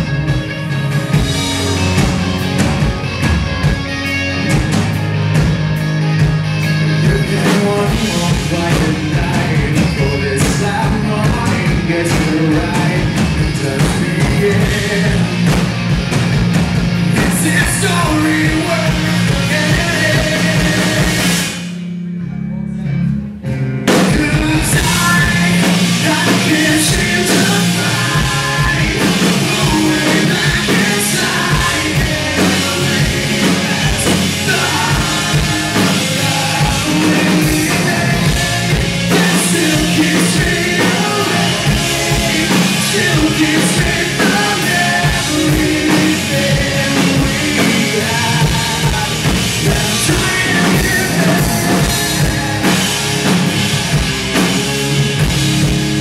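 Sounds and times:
rock band playing: 0:00.0 - 0:56.0
man singing loudly: 0:07.0 - 0:15.5, 0:17.1 - 0:21.4, 0:24.0 - 0:52.8.

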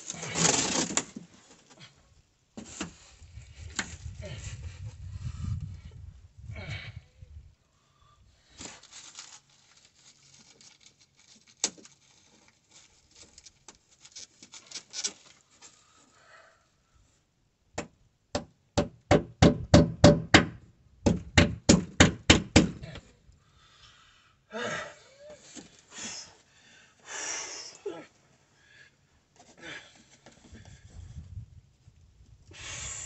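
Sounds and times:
insulation sheet crinkling: 0:08.6 - 0:16.0.

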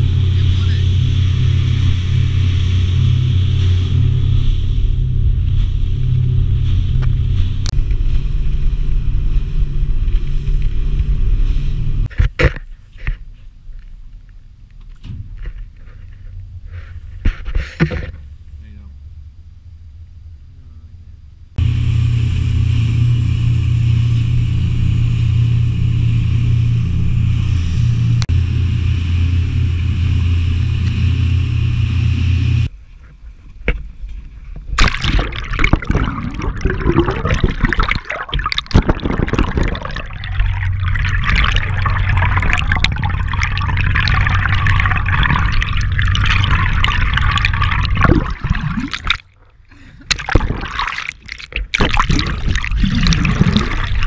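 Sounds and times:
boat motor running: 0:00.0 - 0:12.0, 0:21.6 - 0:32.7, 0:34.8 - 0:54.0
faint steady hum: 0:12.7 - 0:54.0
underwater rushing water: 0:34.8 - 0:49.5, 0:50.1 - 0:54.0.

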